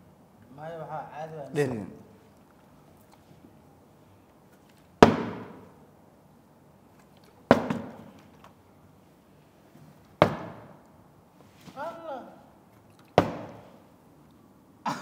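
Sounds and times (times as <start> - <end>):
plastic bottle thudding on table: 7.5 - 8.1, 10.2 - 10.7, 13.2 - 13.6.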